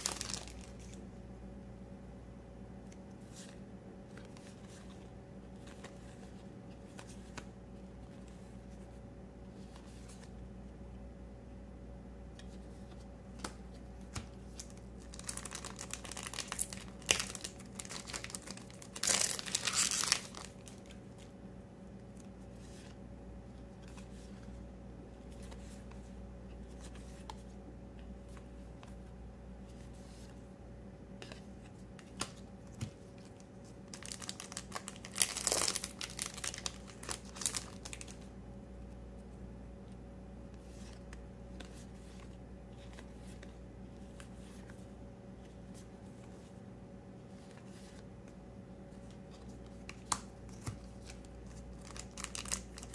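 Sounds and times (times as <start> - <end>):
foil wrappers crinkling and tearing: 0.0 - 1.0, 14.6 - 20.8, 33.9 - 38.2, 51.7 - 52.9.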